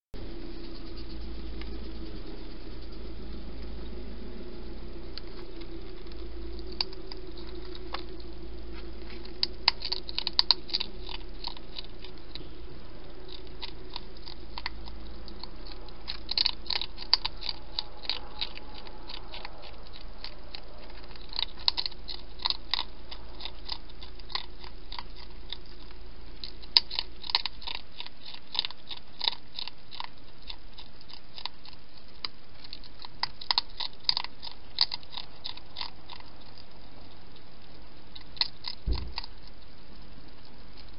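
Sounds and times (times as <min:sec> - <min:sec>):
hedgehog chewing and crunching food: 0:00.2 - 0:40.9.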